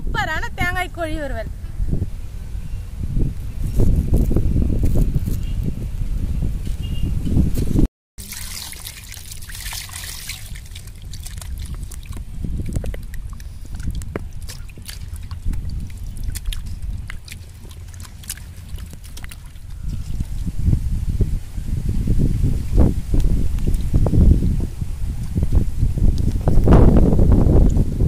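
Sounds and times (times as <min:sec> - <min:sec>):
steady low rumble: 0:00.0 - 0:28.0
small splashes and drips: 0:08.2 - 0:20.5
water sloshing and trickling: 0:08.2 - 0:21.5.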